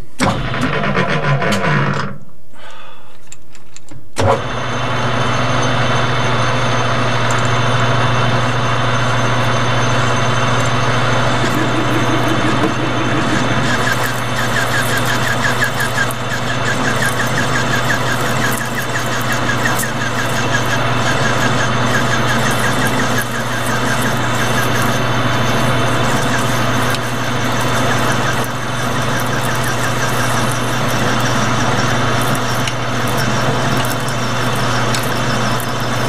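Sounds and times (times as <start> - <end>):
lathe motor hum: 6.1 - 36.0
faint fast ticking: 11.5 - 36.0.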